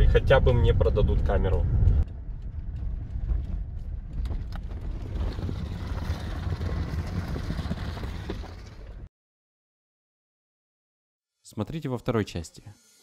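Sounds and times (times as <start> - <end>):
engine and tyres rumbling: 0.0 - 9.1.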